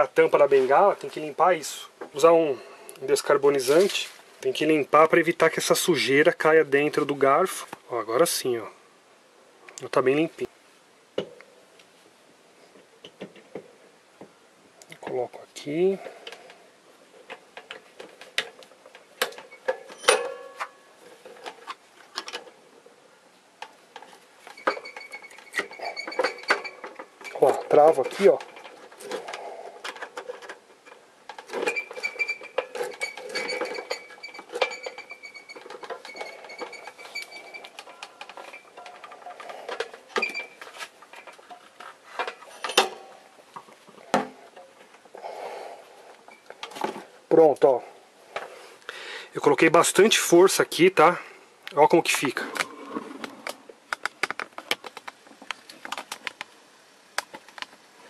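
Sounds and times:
short rustle: 0:03.5 - 0:04.5.

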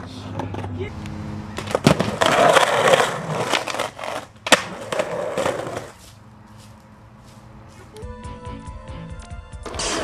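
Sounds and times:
skateboard wheels rolling on concrete: 0:00.0 - 0:08.1, 0:09.2 - 0:10.0
skateboard clacks: 0:01.6 - 0:06.0.

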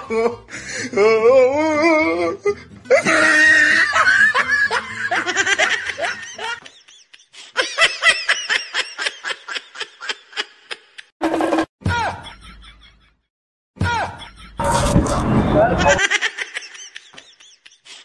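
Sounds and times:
person laughing loudly: 0:02.9 - 0:11.1, 0:15.6 - 0:18.0.

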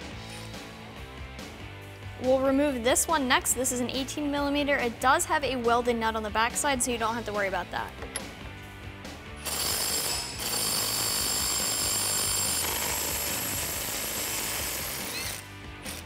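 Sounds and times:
impact wrench running: 0:09.4 - 0:16.0.

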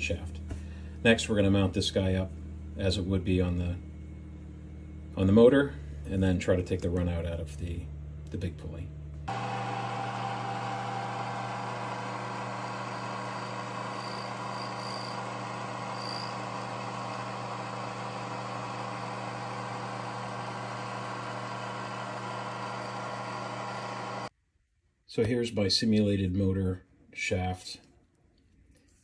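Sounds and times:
metal lathe running: 0:09.3 - 0:24.3.

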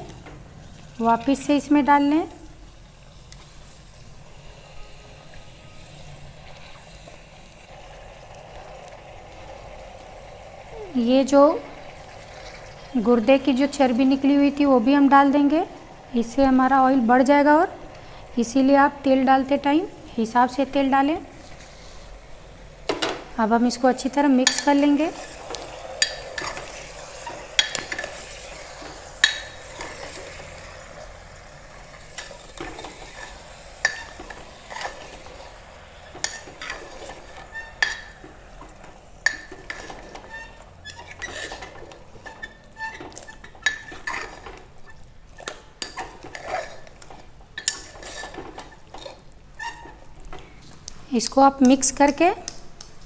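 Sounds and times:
faint sizzle: 0:00.0 - 0:50.6
spoon clinking and scraping pot: 0:24.4 - 0:28.5, 0:29.2 - 0:30.6, 0:31.8 - 0:35.1, 0:36.1 - 0:38.2, 0:39.2 - 0:44.6, 0:45.4 - 0:53.0.

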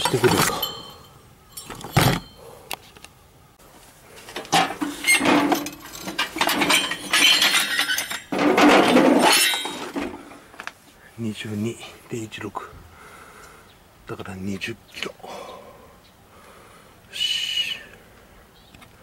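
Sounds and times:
metal pieces clinking in crate: 0:04.5 - 0:10.2.

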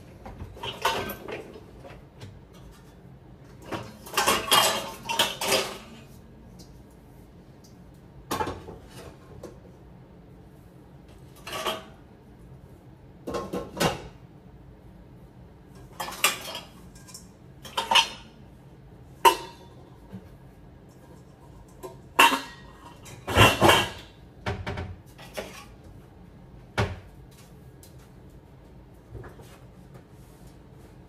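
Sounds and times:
dishes and pots clattering: 0:00.2 - 0:06.7, 0:08.3 - 0:09.6, 0:11.3 - 0:12.0, 0:13.2 - 0:14.2, 0:15.8 - 0:18.4, 0:19.2 - 0:20.3, 0:20.9 - 0:25.8.

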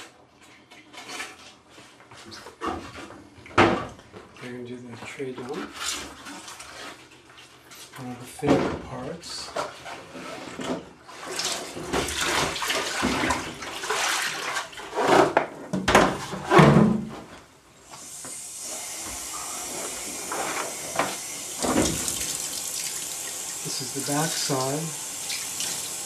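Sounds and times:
water sloshing in plastic tray: 0:03.8 - 0:15.4
stream of running water: 0:18.4 - 0:26.0.

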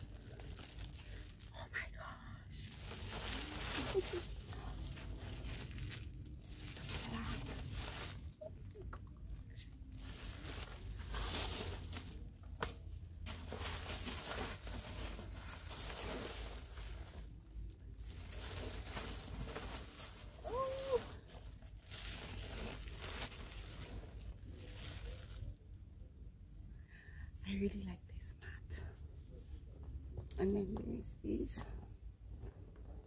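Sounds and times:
plastic packaging crinkling: 0:00.0 - 0:01.6, 0:02.6 - 0:25.6.

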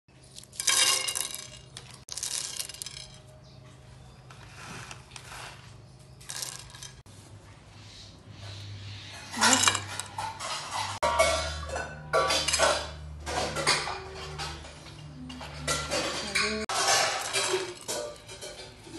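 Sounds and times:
spices clattering on metal pan: 0:09.4 - 0:18.9.

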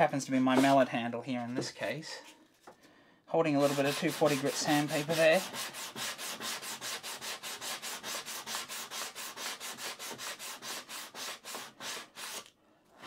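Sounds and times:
sandpaper sanding wood: 0:03.6 - 0:12.5.

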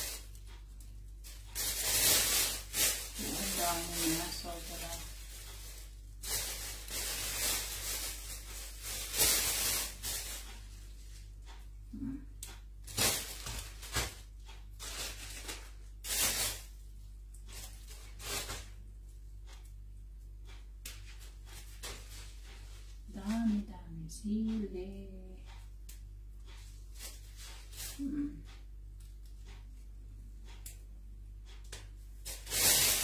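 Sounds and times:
plastic bag rustling: 0:00.0 - 0:00.4, 0:01.2 - 0:11.2, 0:12.8 - 0:16.8, 0:17.5 - 0:18.8, 0:32.2 - 0:33.0.

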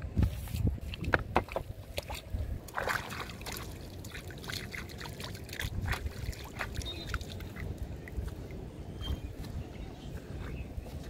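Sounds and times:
hands splashing in water: 0:01.9 - 0:07.7
water trickling: 0:01.9 - 0:08.7.

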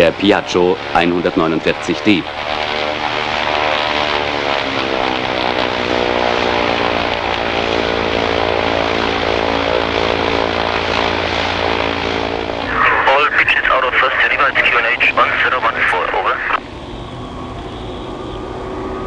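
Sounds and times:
propeller plane engine running: 0:00.0 - 0:19.0.

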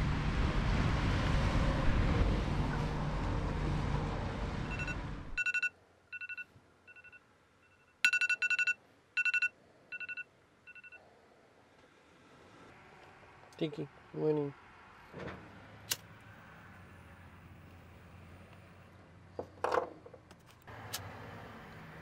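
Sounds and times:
phone alarm two-tone beeps: 0:04.7 - 0:11.0.

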